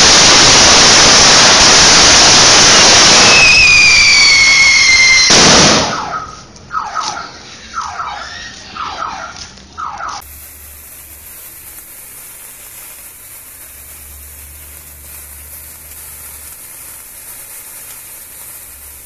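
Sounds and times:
sparkler sizzling: 0.0 - 19.0
high squealing sweeps: 3.1 - 10.2.

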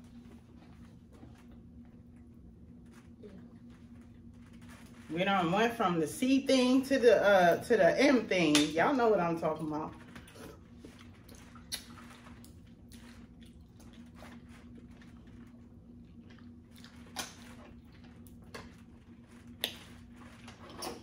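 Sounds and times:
wet eating sounds: 10.0 - 21.0
chewing: 10.2 - 21.0.

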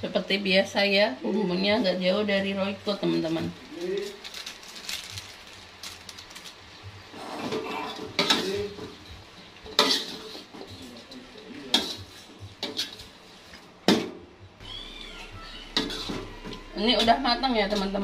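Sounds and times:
metal spatula scraping wok: 9.7 - 13.4, 15.1 - 18.0.

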